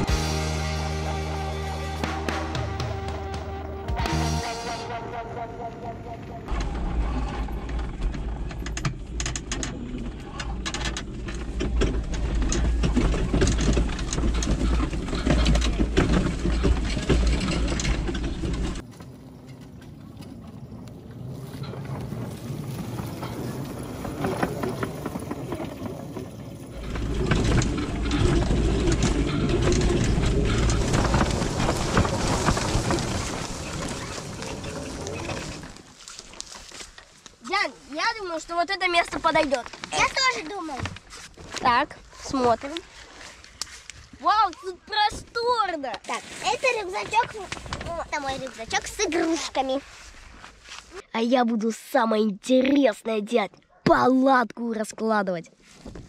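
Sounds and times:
toy car rattling over bumps: 0:06.5 - 0:20.4, 0:21.2 - 0:36.0, 0:46.0 - 0:49.8.

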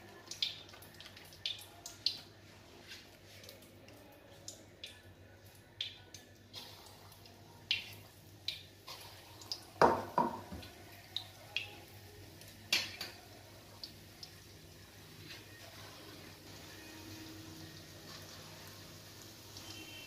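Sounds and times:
batter sizzling in oil: 0:06.4 - 0:20.0.

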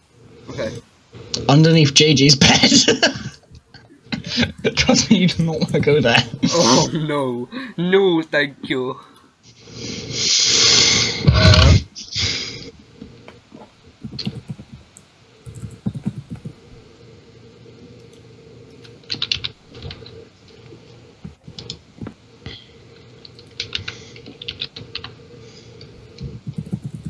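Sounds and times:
computer keyboard typing: 0:04.2 - 0:06.4, 0:14.0 - 0:16.7, 0:18.0 - 0:22.6, 0:23.2 - 0:25.2, 0:25.8 - 0:27.0.

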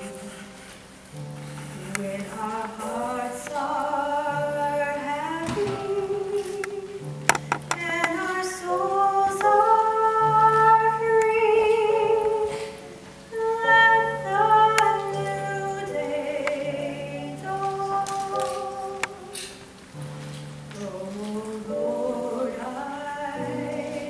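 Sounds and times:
mixed choir singing in harmony: 0:21.5 - 0:24.0.

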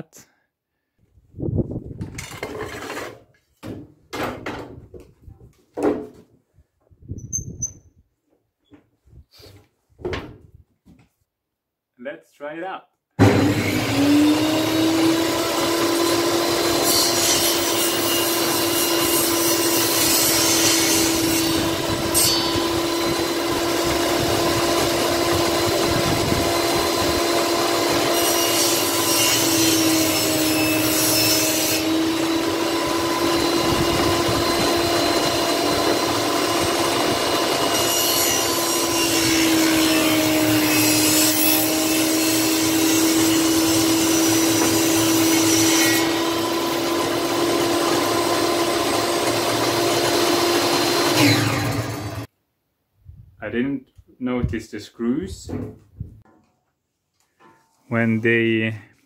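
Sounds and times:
saw blade cutting wood: 0:13.2 - 0:52.3
table saw motor humming: 0:13.2 - 0:52.3.

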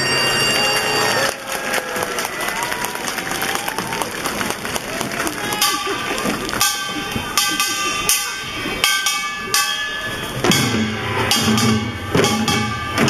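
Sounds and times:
percussion band playing: 0:00.0 - 0:13.0
drum and gong strikes: 0:05.5 - 0:13.0.

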